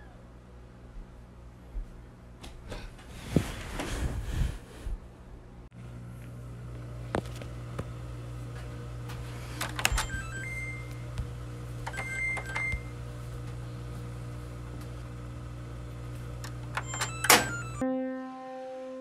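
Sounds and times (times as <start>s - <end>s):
low machine hum: 0.0s - 18.1s.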